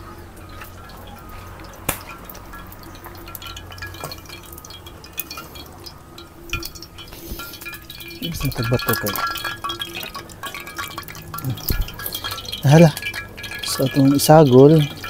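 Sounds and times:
firewood crackling: 0:00.0 - 0:15.0.

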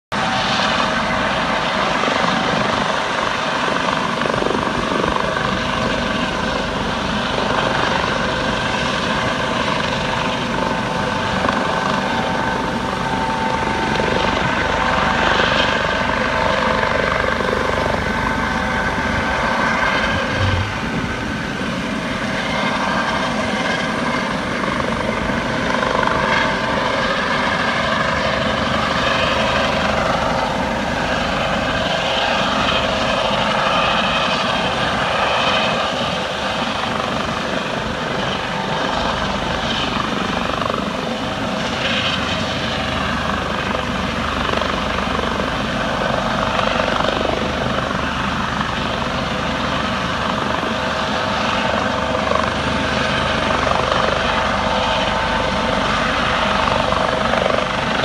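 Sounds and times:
helicopter rotor and turbine: 0:00.1 - 0:58.0.

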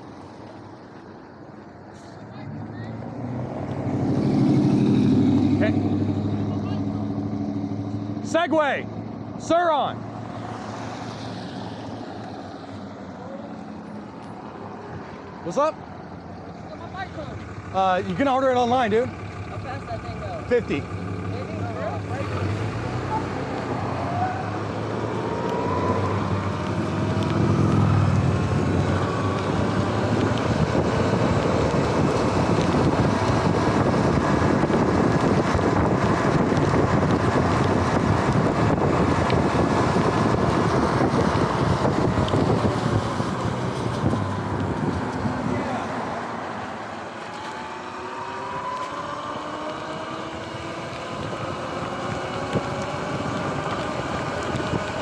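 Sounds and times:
wind rush on microphone: 0:23.2 - 0:46.9, 0:49.7 - 0:55.0.

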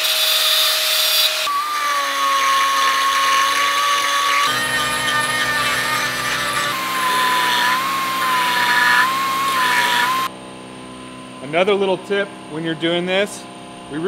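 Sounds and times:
angle grinder grinding steel: 0:00.0 - 0:10.3
die grinder whining: 0:00.0 - 0:10.3.

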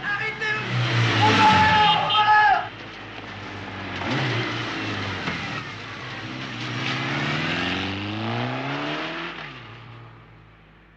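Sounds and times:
motorcycle engine revving: 0:03.4 - 0:10.1.

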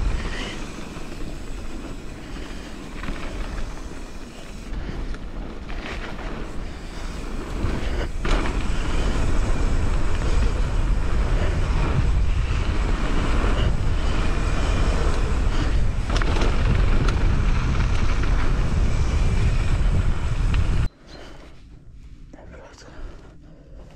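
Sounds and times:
bike tyres rolling on gravel: 0:00.0 - 0:20.9
wind rushing over microphone: 0:00.0 - 0:20.9
bike knocking over bumps: 0:05.5 - 0:11.9.

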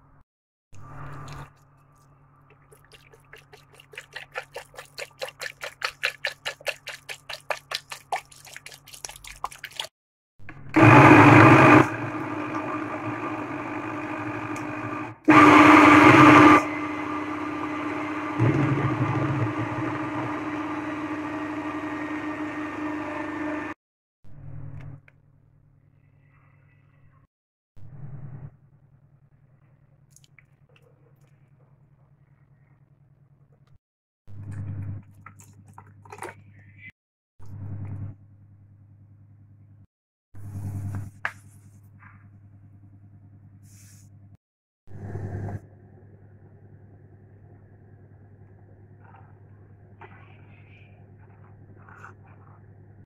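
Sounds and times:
milk glugging into blender jar: 0:01.0 - 0:09.9, 0:34.6 - 0:36.4
blender motor running: 0:10.6 - 0:23.8.

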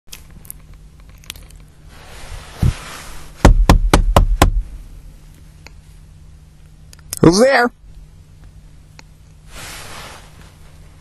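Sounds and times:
soft hiss: 0:00.6 - 0:03.8, 0:04.5 - 0:07.2, 0:07.8 - 0:11.0
knocking on door: 0:03.4 - 0:04.7.

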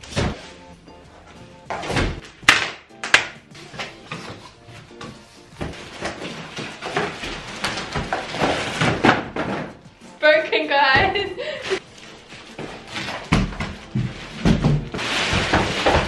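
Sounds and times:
background music: 0:00.0 - 0:16.0
cardboard rustling and scraping: 0:03.6 - 0:09.8, 0:11.0 - 0:16.0.

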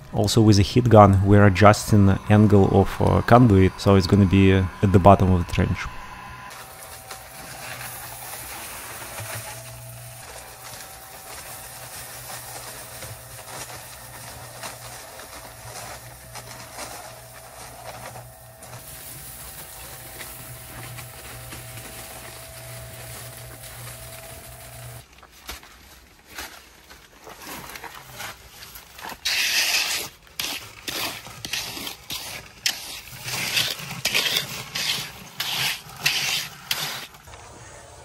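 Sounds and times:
cement mixer humming: 0:00.0 - 0:25.0, 0:29.2 - 0:38.0
gritty rattle of gravel: 0:06.5 - 0:37.3.

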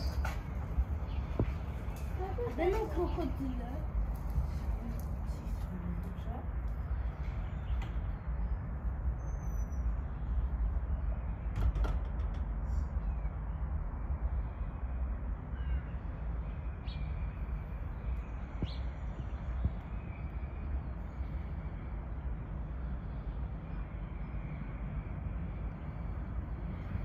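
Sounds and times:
steady low rumble: 0:00.0 - 0:27.0
faint bird chirps: 0:09.1 - 0:11.6, 0:15.5 - 0:21.5.

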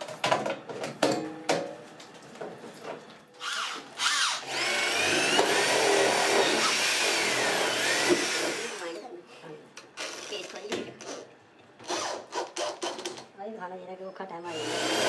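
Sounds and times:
electric drill whining: 0:03.4 - 0:09.0, 0:14.5 - 0:15.0.

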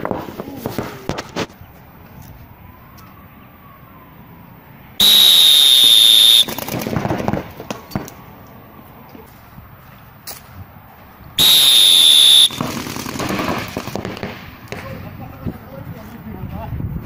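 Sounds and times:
paintball marker firing shots: 0:06.0 - 0:08.2, 0:11.4 - 0:15.0.

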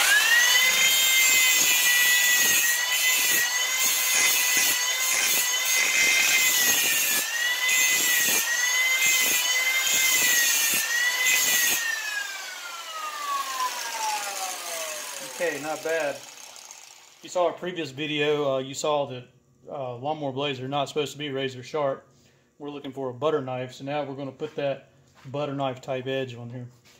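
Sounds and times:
grinder motor winding down: 0:00.0 - 0:01.4, 0:08.5 - 0:17.3
angle grinder grinding steel: 0:00.0 - 0:17.4.

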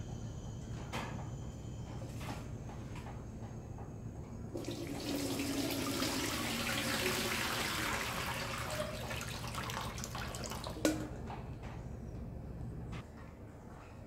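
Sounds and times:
water splashing into steel bowl: 0:04.6 - 0:11.2.

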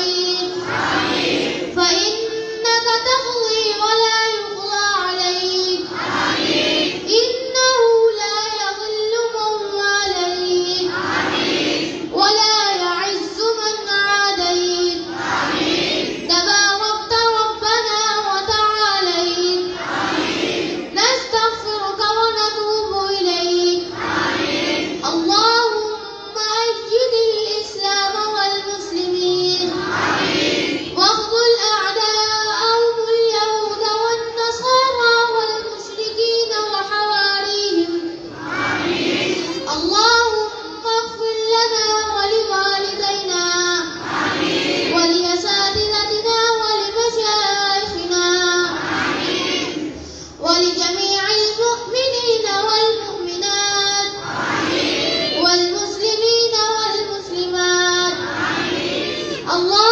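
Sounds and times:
child singing slow melody: 0:00.0 - 0:00.6, 0:01.7 - 0:11.0, 0:25.0 - 0:29.8, 0:39.5 - 0:44.0, 0:44.8 - 0:54.2, 0:54.8 - 0:59.9.

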